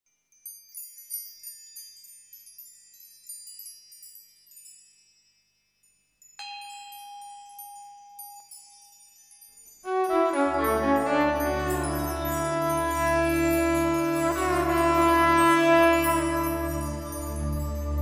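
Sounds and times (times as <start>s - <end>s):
chimes tinkling: 0.2s - 18.0s
low steady ringing tone: 4.7s - 9.9s.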